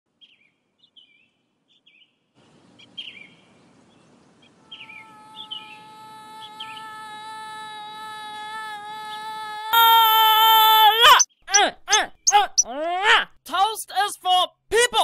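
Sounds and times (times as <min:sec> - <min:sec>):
songbirds chirping: 0:00.1 - 0:07.0, 0:11.0 - 0:12.8
outdoor ambience: 0:00.1 - 0:13.4.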